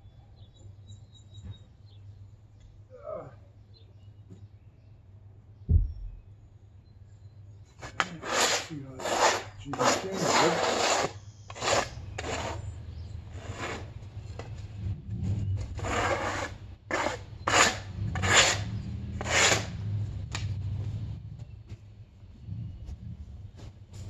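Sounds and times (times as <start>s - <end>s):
scraping on wood: 7.8s - 19.8s.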